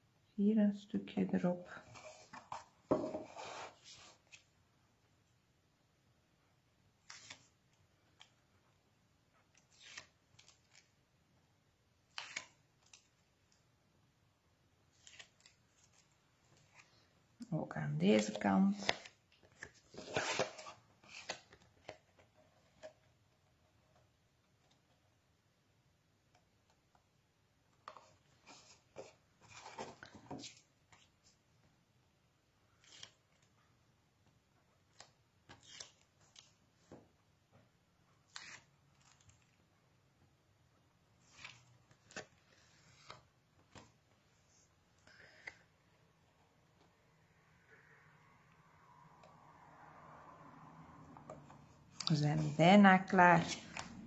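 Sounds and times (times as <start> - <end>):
paper rustling: 14.9 - 17.1, 41.2 - 44.1.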